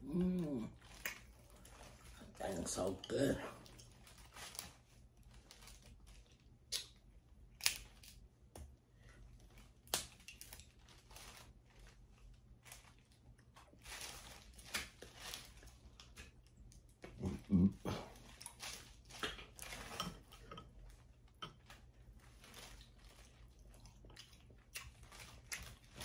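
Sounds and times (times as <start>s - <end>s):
crinkling: 0.4s - 8.3s, 9.1s - 26.0s
shells cracking and peeling: 7.6s - 8.2s
chewing: 15.1s - 26.0s.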